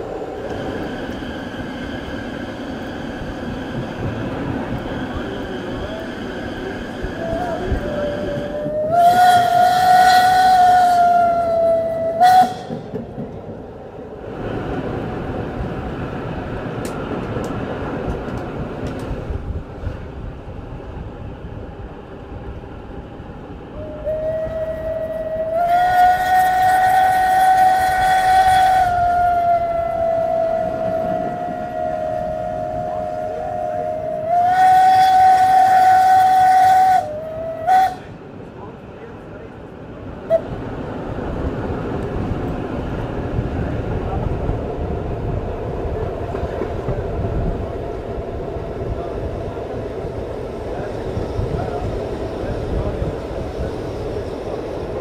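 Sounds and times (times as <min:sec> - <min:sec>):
train rumbling on rails: 0:00.0 - 0:55.0
steam locomotive whistle: 0:07.2 - 0:12.9, 0:23.8 - 0:38.1.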